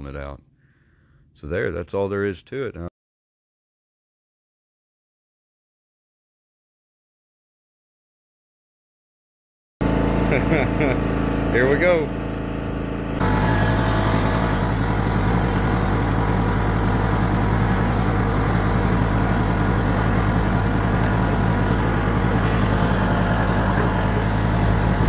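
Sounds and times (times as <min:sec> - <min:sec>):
riding lawn mower engine running: 0:09.8 - 0:25.0.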